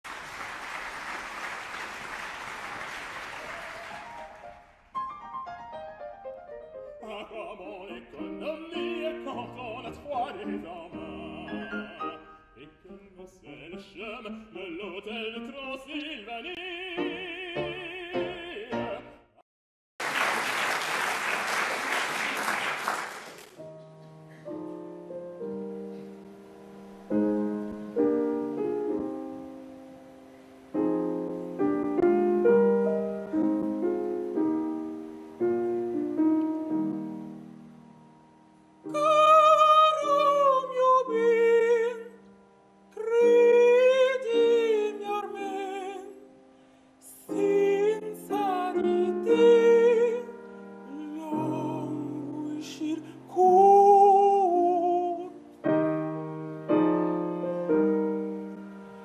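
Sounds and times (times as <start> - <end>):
audience applause: 0.0 - 4.8, 20.0 - 23.6
piano playing: 3.8 - 19.4, 23.5 - 59.0
operatic singing with vibrato: 7.0 - 19.3, 38.8 - 42.2, 42.9 - 46.3, 47.0 - 55.5.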